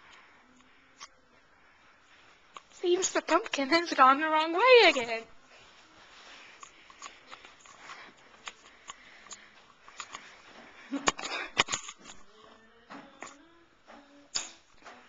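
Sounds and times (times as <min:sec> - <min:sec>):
soft footsteps: 0:01.4 - 0:11.0.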